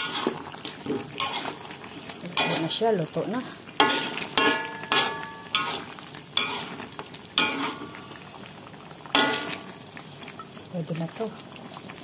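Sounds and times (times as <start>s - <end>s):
spatula scraping a metal wok: 0.0s - 2.9s, 3.7s - 8.0s, 9.1s - 9.8s
low sizzle: 0.0s - 12.0s.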